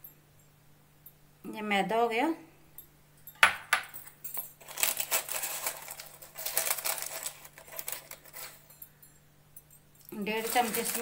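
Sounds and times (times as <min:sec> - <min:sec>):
kitchen utensils clicking and scraping: 0:03.9 - 0:08.8, 0:10.1 - 0:11.0.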